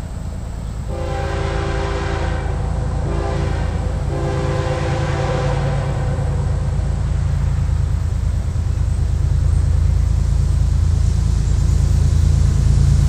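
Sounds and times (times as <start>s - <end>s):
locomotive air horn: 0.9s - 6.7s.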